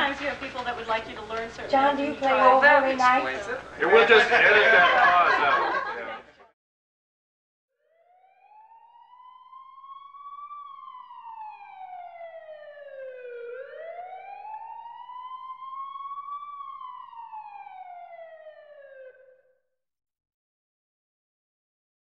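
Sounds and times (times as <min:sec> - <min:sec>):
emergency siren wailing: 0:07.8 - 0:19.6.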